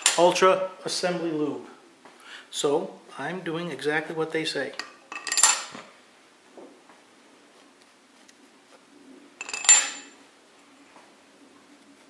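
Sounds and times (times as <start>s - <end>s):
metallic clink with ring: 9.4s - 10.2s.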